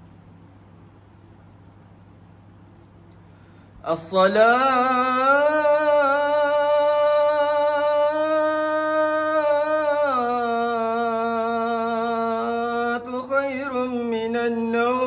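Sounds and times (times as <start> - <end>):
man chanting call to prayer: 3.8 - 15.0.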